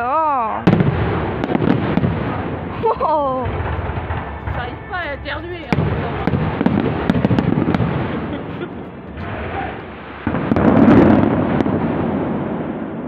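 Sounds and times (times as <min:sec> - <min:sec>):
fireworks booming: 0:00.0 - 0:13.0
fireworks cracking: 0:00.0 - 0:13.0.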